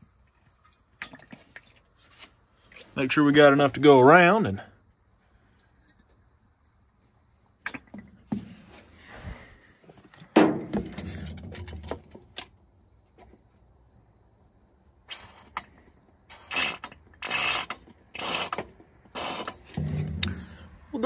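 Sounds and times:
squeeze bottle hissing spurts: 0:15.1 - 0:15.7, 0:16.3 - 0:19.7.

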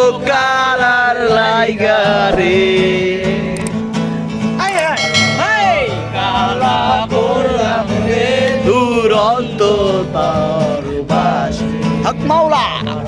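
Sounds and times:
man singing: 0:00.0 - 0:03.8, 0:05.8 - 0:13.0
acoustic guitar strumming: 0:02.0 - 0:12.4.

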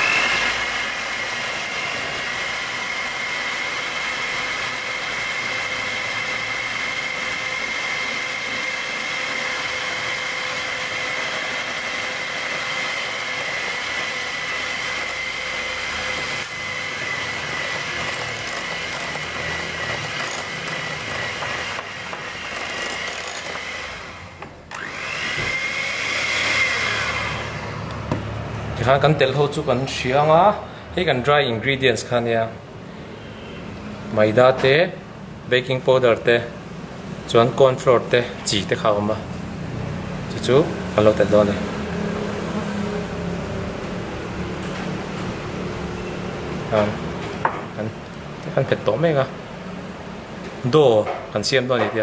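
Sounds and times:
electric hand mixer whining: 0:00.0 - 0:28.2.

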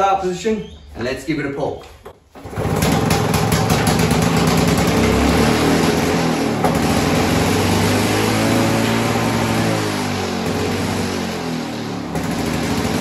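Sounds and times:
lawn mower engine running fast: 0:02.4 - 0:13.0.

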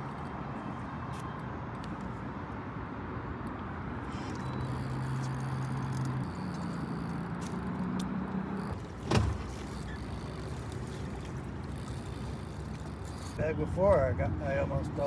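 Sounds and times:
boat motor humming: 0:04.2 - 0:13.4.

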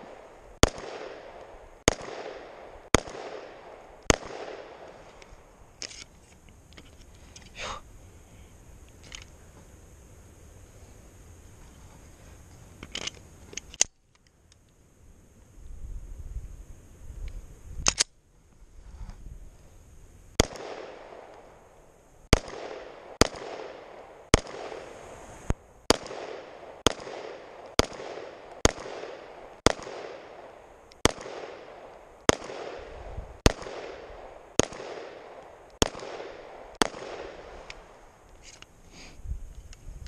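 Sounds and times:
pistol shots with echo: 0:00.0 - 0:04.9, 0:20.4 - 0:21.4, 0:22.3 - 0:24.8, 0:25.9 - 0:38.0.

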